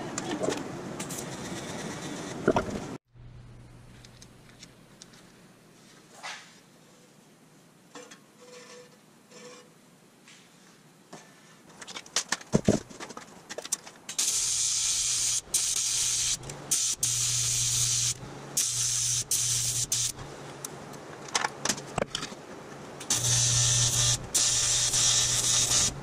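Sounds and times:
welding arc hissing and buzzing: 0:14.1 - 0:20.3, 0:23.0 - 0:26.0.

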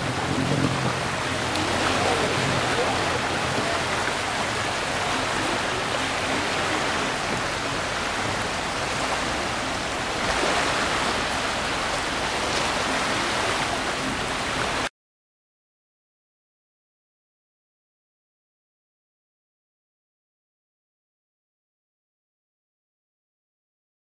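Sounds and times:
small surf: 0:00.0 - 0:14.9.

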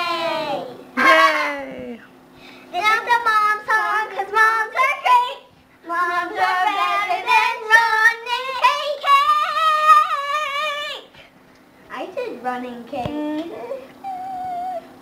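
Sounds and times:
child singing: 0:02.8 - 0:11.1.

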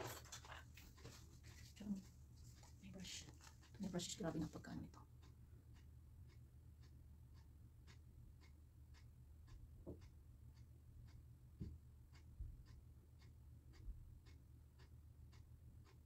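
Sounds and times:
soft even ticking: 0:00.9 - 0:16.0
soft low thumps: 0:11.5 - 0:12.7.

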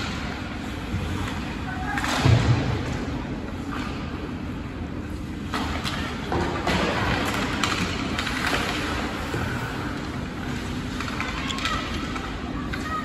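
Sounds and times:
hockey sticks and puck clacking: 0:05.4 - 0:13.0.

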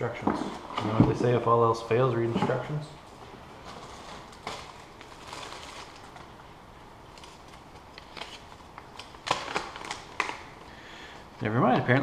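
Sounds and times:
packaging rustling: 0:03.5 - 0:10.7.

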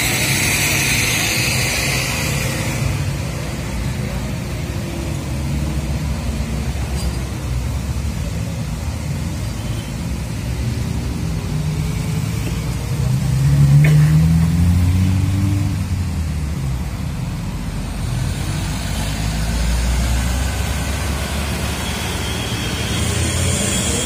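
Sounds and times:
hiss: 0:00.0 - 0:04.8, 0:17.7 - 0:24.0
motorcycles passing: 0:10.8 - 0:24.0
truck engine pulling uphill: 0:16.8 - 0:24.0.

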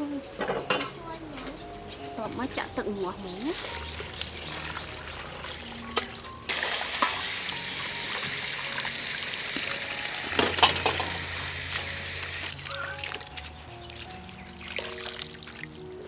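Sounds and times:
water splashing into metal bowl: 0:03.3 - 0:11.9, 0:12.6 - 0:16.0.

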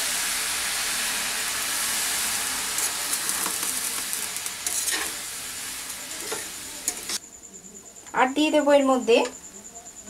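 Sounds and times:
food sizzling in a wok: 0:00.0 - 0:07.2
spatula scraping and stirring: 0:02.7 - 0:05.3, 0:06.0 - 0:07.2.

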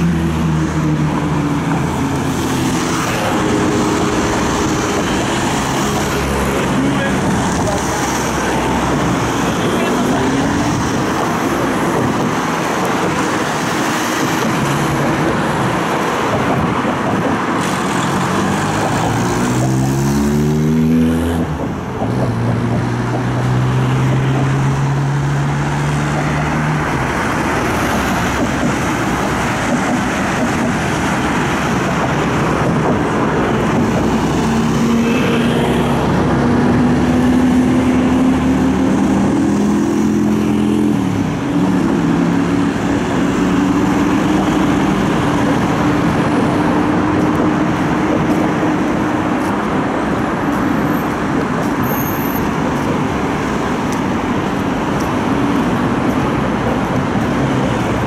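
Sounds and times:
road traffic passing: 0:00.0 - 0:58.0
vehicle engine accelerating: 0:17.7 - 0:58.0.

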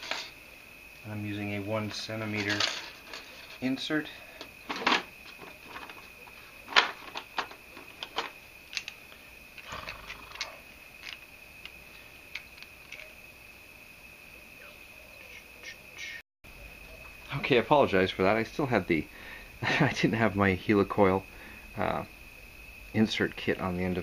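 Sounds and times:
metal hand tools clinking: 0:02.2 - 0:03.7.

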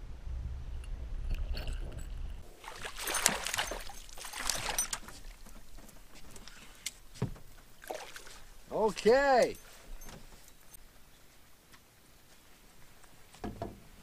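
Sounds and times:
fish splashing at surface: 0:02.4 - 0:05.6.

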